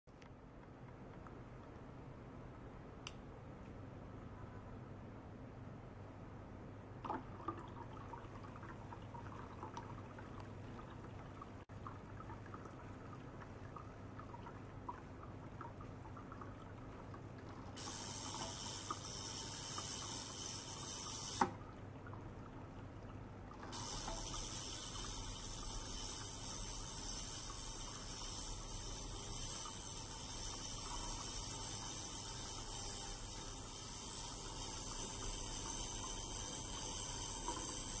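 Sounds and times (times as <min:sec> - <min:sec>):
ultrasonic cleaner hiss: 0:17.8 - 0:21.5, 0:23.7 - 0:38.0.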